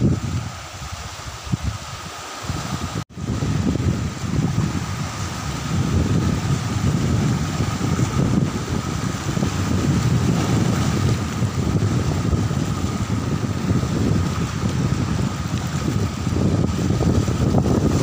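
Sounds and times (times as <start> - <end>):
waves washing over rocks: 0.0 - 18.0
wind buffeting microphone: 0.0 - 18.0.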